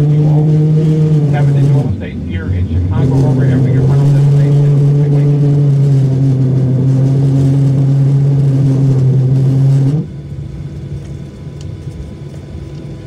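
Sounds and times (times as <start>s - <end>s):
airplane cabin engine hum: 0.0s - 13.0s.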